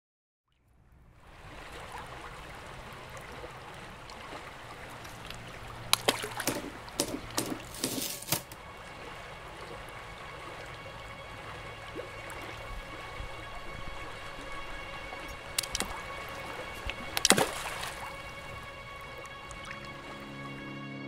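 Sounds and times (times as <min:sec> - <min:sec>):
running water flowing: 0:01.1 - 0:20.7
sharp water splashes: 0:01.2 - 0:20.6.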